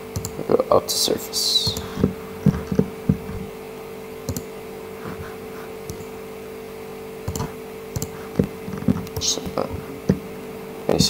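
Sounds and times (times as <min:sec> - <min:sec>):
steady electrical hum: 0:00.0 - 0:11.0
computer clicks: 0:00.1 - 0:00.4, 0:04.2 - 0:04.5, 0:05.9 - 0:06.1, 0:07.2 - 0:09.5.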